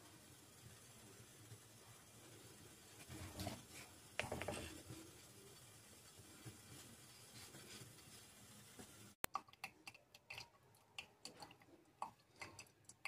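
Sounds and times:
faint clicks and ticks: 8.7 - 13.0.

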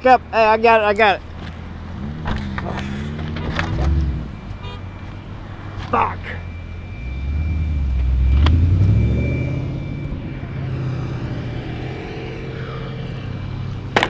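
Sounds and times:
vehicle engine speeding up: 1.6 - 4.6, 6.4 - 14.0.

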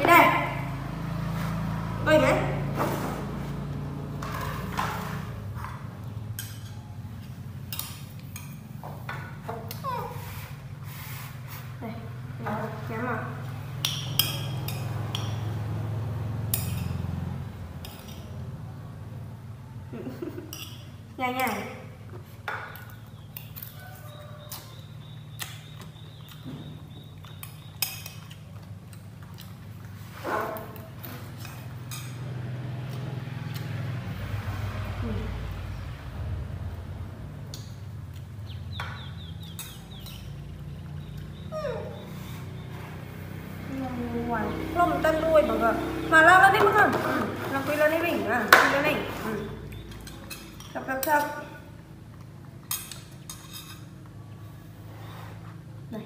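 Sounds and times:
metal spoon scraping ceramic bowl: 52.7 - 53.9.

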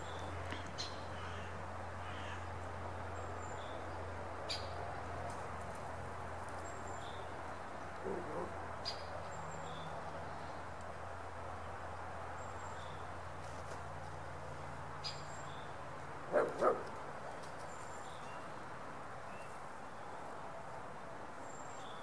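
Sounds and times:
dog barking: 16.3 - 16.9.

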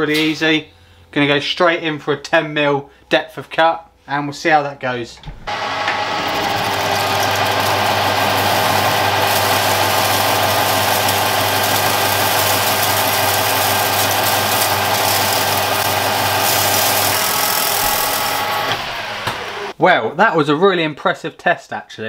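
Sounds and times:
lathe motor and gearing hum: 5.5 - 19.7
hiss of metal cutting: 6.3 - 19.7.

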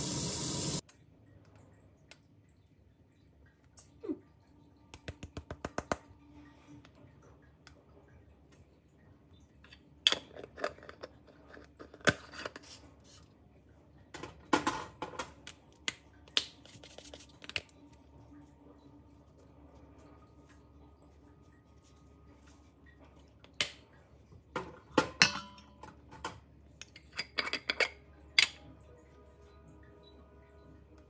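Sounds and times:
metal spoon tapping metal bowl: 25.0 - 25.8.

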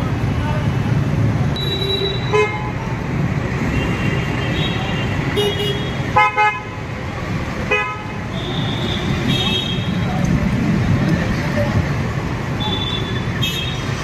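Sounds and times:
road traffic rumble: 0.0 - 14.0
vehicle horns honking: 3.7 - 6.8, 7.7 - 10.0, 12.6 - 14.0.

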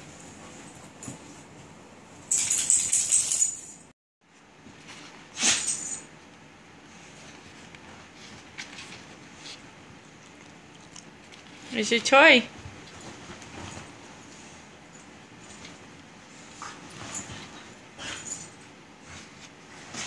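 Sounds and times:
dog rustling bedding: 11.2 - 20.0.

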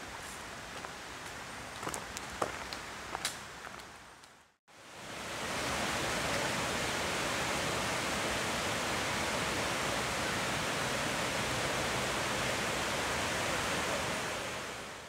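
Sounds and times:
creek water flowing over rocks: 4.7 - 15.0.

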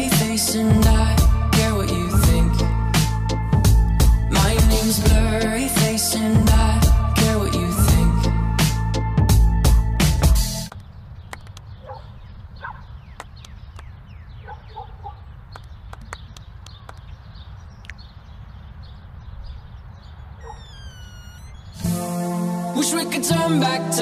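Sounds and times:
faint short chirps: 20.4 - 21.8.

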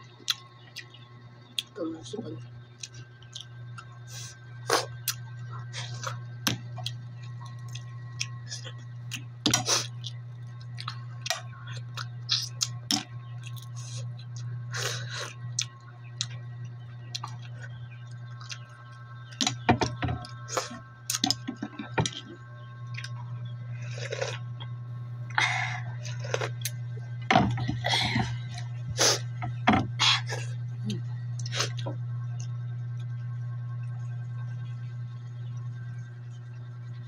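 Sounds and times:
steady low hum: 0.0 - 37.0
chewing and mouth sounds: 2.8 - 3.9.

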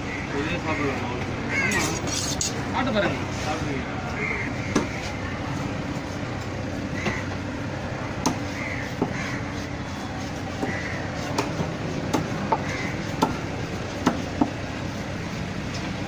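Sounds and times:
crows cawing: 0.0 - 2.0, 4.1 - 5.0, 6.7 - 7.6, 8.3 - 13.4.

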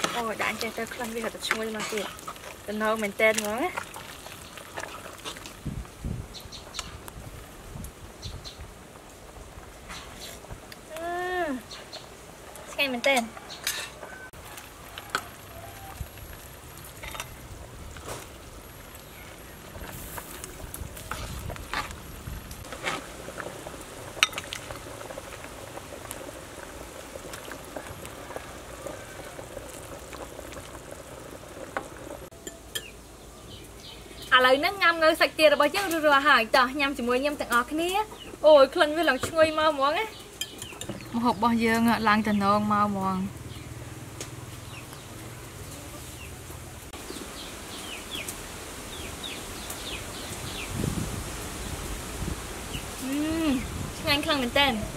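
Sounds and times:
soup boiling and bubbling: 0.0 - 54.8
small birds chirping: 6.3 - 7.1, 8.1 - 8.7, 11.3 - 12.2, 32.4 - 50.9.

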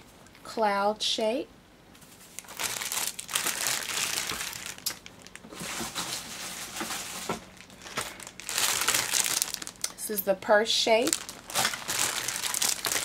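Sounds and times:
plastic packaging crinkling: 2.0 - 10.0, 11.0 - 13.0.

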